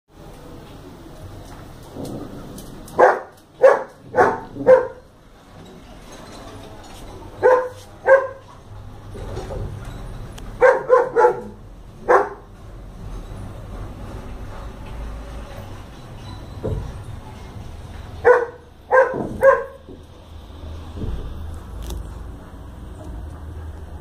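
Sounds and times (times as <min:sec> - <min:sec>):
dog barking: 0:03.0 - 0:05.1, 0:07.4 - 0:08.5, 0:10.6 - 0:12.5, 0:18.2 - 0:19.8.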